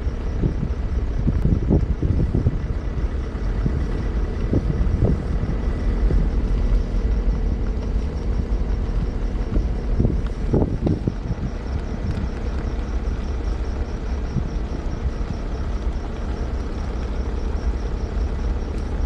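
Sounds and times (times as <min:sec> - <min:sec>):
car driving rumble: 0:00.0 - 0:19.0
wind on microphone: 0:00.0 - 0:19.0.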